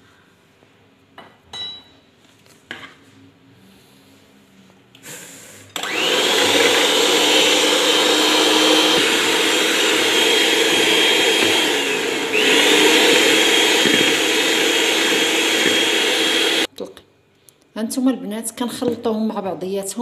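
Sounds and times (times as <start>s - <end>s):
beaters whisking eggs in a bowl: 5.8s - 16.7s
electric hand mixer whining: 5.8s - 16.7s.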